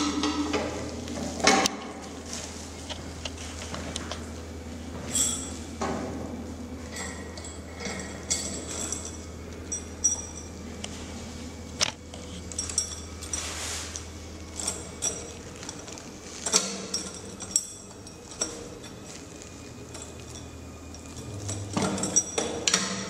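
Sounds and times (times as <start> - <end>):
steady low hum: 0.0 - 23.0
plastic wrapping rustling: 2.0 - 4.2, 12.1 - 20.4
metal clinks and knocks: 6.9 - 10.6, 11.8 - 19.1, 19.9 - 23.0.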